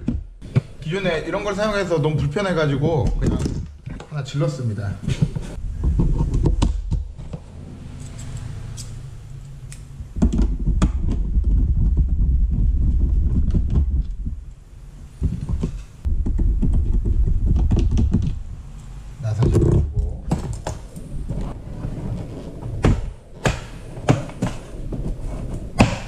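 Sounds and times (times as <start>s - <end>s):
low rumble: 5.6s - 21.7s.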